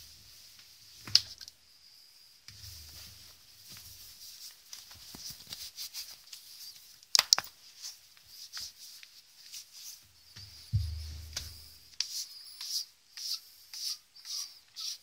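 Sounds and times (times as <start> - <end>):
water dripping: 1.1 - 1.6
wet hands rubbing flashlight: 7.8 - 15.0.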